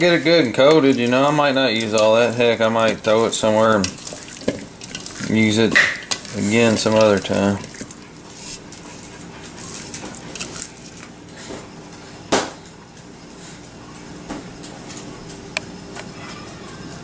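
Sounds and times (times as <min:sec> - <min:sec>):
low background hum: 0:00.0 - 0:17.0
chicken wings rustling in plastic bowl: 0:00.2 - 0:11.1.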